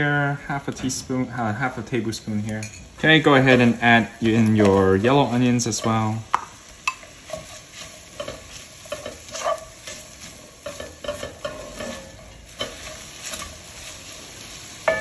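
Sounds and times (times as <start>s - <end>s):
onions sizzling in a pan: 0.0s - 15.0s
spatula scraping and tapping pan: 3.4s - 14.0s.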